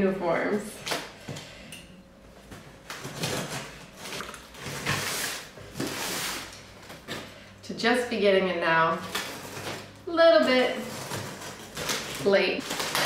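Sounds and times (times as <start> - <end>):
cardboard scraping: 2.9 - 7.3, 9.0 - 13.0
scissors slicing packing tape: 10.8 - 13.0.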